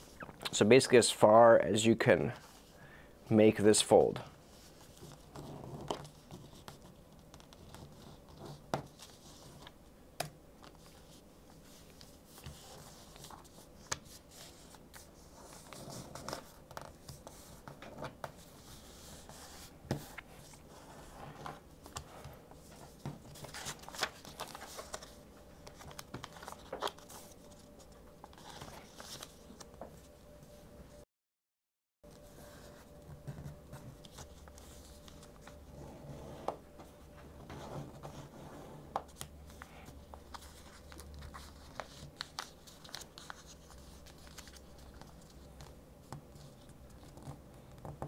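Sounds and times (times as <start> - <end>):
paper rustling and sliding: 10.6 - 29.7, 37.5 - 45.3.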